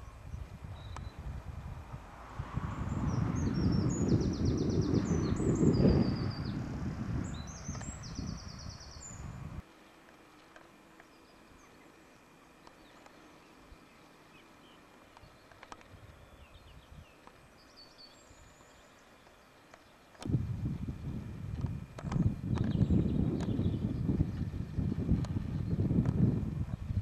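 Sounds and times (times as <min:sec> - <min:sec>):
songbird singing trills: 0:00.0 - 0:01.8, 0:02.8 - 0:09.5, 0:10.9 - 0:26.2
low rumbling noise: 0:00.0 - 0:09.6, 0:20.2 - 0:27.0
distant bird chirps: 0:02.9 - 0:20.2.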